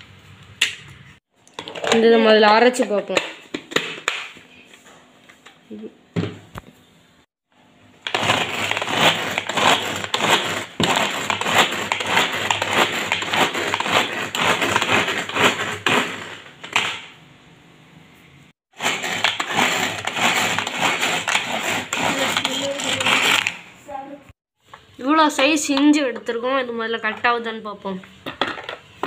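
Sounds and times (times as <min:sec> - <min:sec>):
blades chopping vegetables in bowl: 0:08.1 - 0:16.4, 0:18.7 - 0:23.5.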